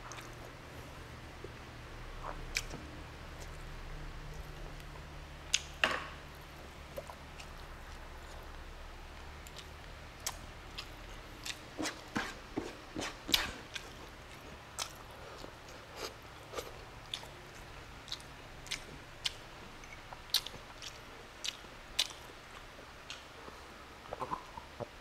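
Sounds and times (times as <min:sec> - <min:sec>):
person chewing food: 0:06.3 - 0:25.0.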